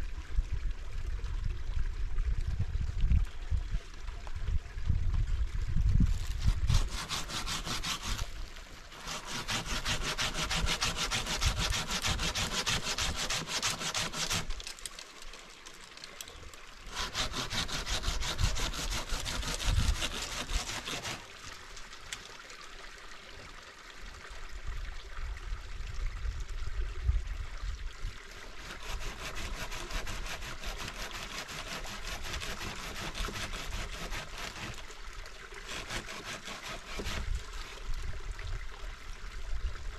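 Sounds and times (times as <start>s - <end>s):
hand saw cutting branch: 6.1s - 15.0s, 16.8s - 21.4s, 28.6s - 34.9s, 35.6s - 37.8s.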